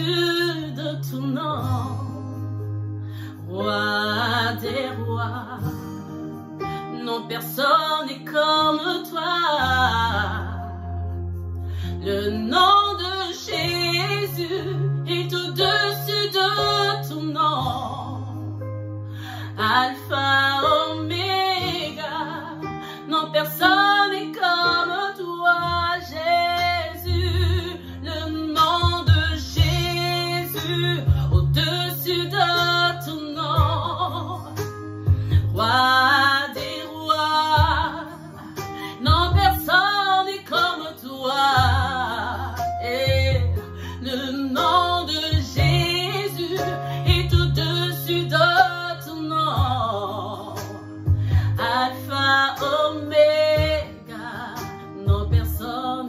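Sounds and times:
woman singing: 0:00.0 - 0:02.6, 0:03.2 - 0:11.1, 0:11.8 - 0:18.6, 0:19.2 - 0:56.0
guitar: 0:00.0 - 0:56.0
low bass notes: 0:28.8 - 0:32.3, 0:33.4 - 0:35.7, 0:37.6 - 0:38.0, 0:39.1 - 0:39.6, 0:41.6 - 0:43.8, 0:47.0 - 0:47.7, 0:49.5 - 0:50.2, 0:55.1 - 0:55.6.

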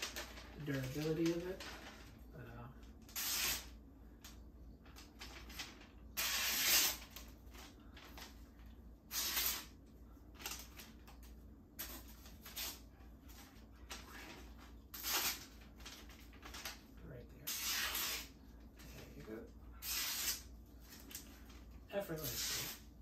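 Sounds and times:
paper rustling: 0:00.0 - 0:02.3, 0:04.3 - 0:17.0
knife slicing paper: 0:03.1 - 0:03.8, 0:06.2 - 0:07.3, 0:09.1 - 0:09.8, 0:14.9 - 0:15.6, 0:17.5 - 0:18.4, 0:19.8 - 0:20.5, 0:22.2 - 0:22.9.

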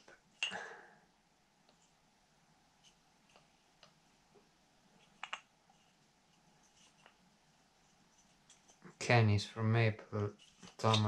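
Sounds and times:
wooden toy parts clacking: 0:05.2 - 0:05.4, 0:10.4 - 0:11.0.

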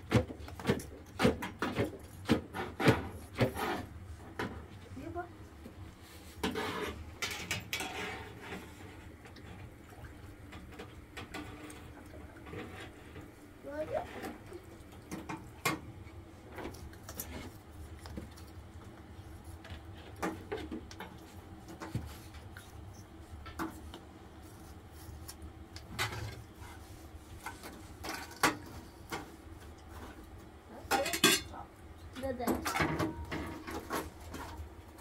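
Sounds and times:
metal bowls and utensils clinking: 0:30.8 - 0:31.6.

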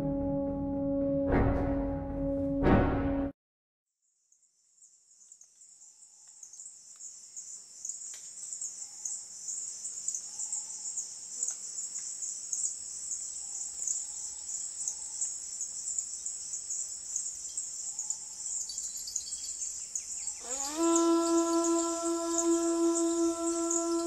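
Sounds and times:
underwater crackling hiss: 0:20.4 - 0:24.0.

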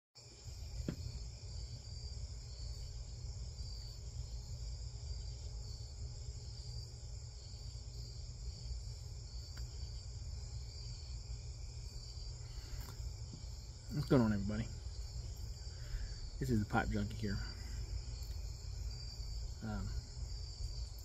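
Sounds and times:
insects chirping: 0:00.2 - 0:21.0.

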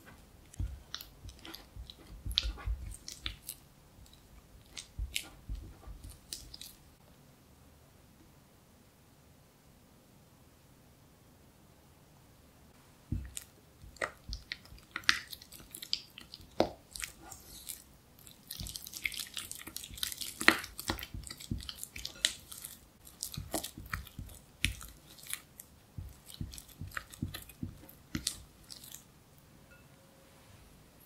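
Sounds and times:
spatula squishing cream cheese: 0:00.0 - 0:07.0, 0:13.1 - 0:29.1.

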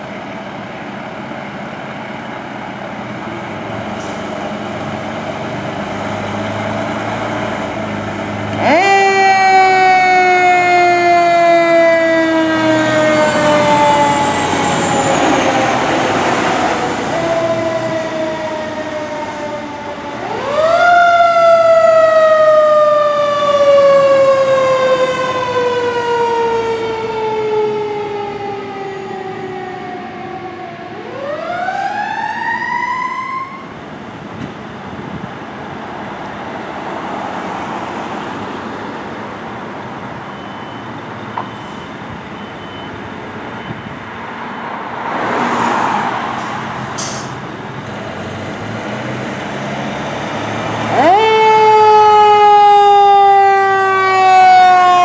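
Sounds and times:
mechanical siren wailing: 0:08.5 - 0:33.8, 0:50.8 - 0:55.0.

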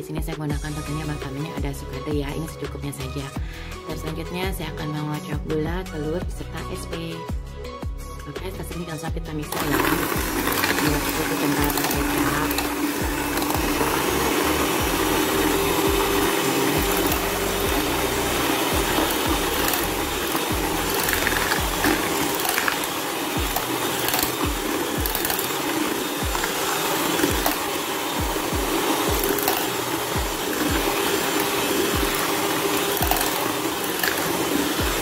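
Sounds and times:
electric hand mixer whipping: 0:09.4 - 0:35.0.

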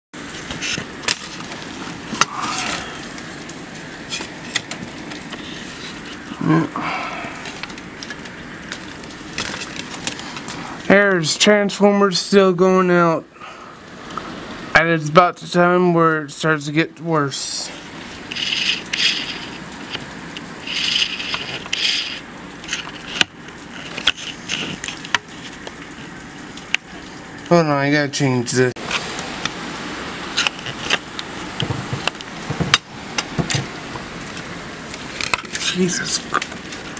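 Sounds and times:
sharp cracks: 0:00.2 - 0:05.5
wind and rain rushing: 0:00.2 - 0:36.9.

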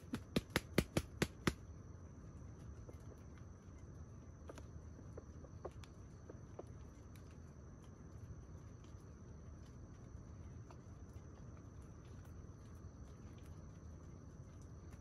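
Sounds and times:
rooster wing claps: 0:00.0 - 0:01.6
high insect hum: 0:00.0 - 0:15.0.

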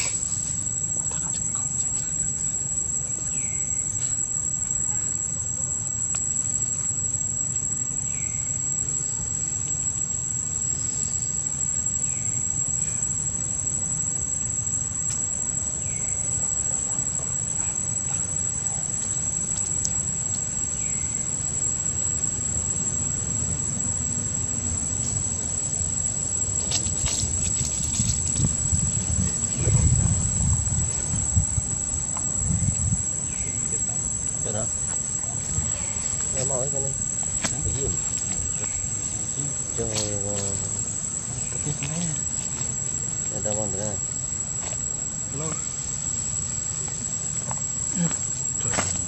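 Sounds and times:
high-pitched insect drone: 0:00.0 - 0:49.0
low rumble: 0:26.9 - 0:33.2.

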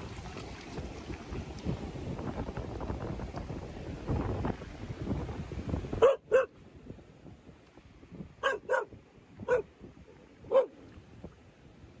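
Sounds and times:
dog barking: 0:06.0 - 0:06.5, 0:08.4 - 0:08.9, 0:09.5 - 0:09.7, 0:10.5 - 0:10.8.

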